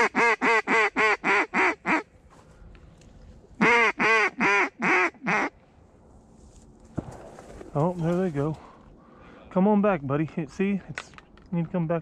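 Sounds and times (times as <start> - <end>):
duck call quacks: 0.0 - 2.1, 3.6 - 5.5.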